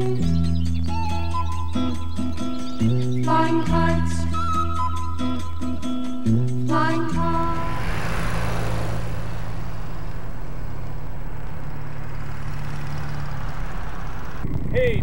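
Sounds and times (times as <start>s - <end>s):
vehicle engine humming: 4.8s - 15.0s
road and wind noise: 5.0s - 15.0s.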